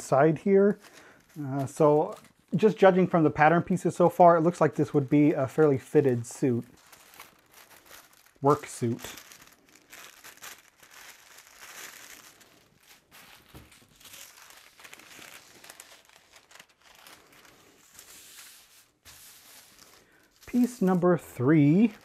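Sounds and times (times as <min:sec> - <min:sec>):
paper rustling and crinkling: 0:00.1 - 0:22.0.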